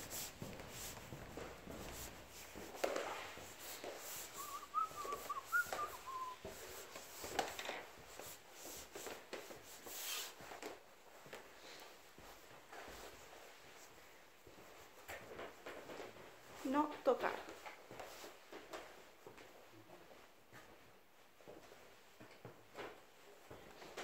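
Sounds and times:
footsteps: 0.0s - 24.0s
person whistling: 4.2s - 6.4s.

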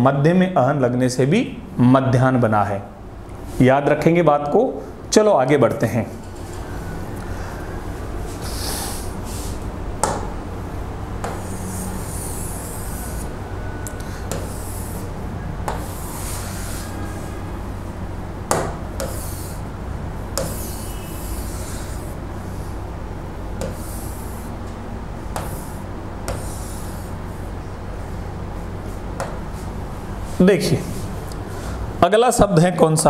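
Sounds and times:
steady low hum: 0.0s - 33.0s
pen rubbing on a screen: 8.4s - 9.6s, 11.2s - 13.4s, 14.0s - 17.4s, 19.0s - 19.7s, 20.4s - 22.8s, 23.6s - 24.6s, 25.3s - 27.5s
pen tapping on a screen: 11.2s - 11.6s, 14.0s - 14.7s, 18.5s - 19.5s, 20.4s - 20.8s, 23.6s - 24.1s, 25.3s - 26.6s.

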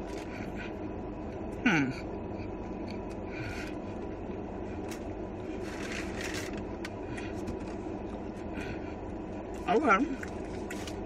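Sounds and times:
low hum in car cabin: 0.0s - 11.0s
chewing crunchy sandwich: 4.8s - 7.9s.

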